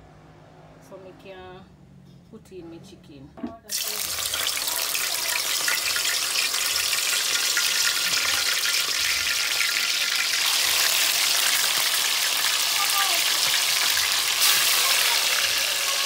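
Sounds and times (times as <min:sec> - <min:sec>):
chicken sizzling in hot oil: 0:03.7 - 0:16.0.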